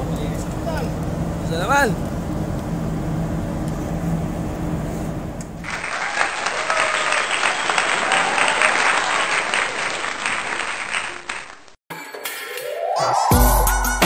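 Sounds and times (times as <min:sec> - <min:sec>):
men clapping and cheering: 0:05.6 - 0:11.8
music: 0:11.9 - 0:14.0.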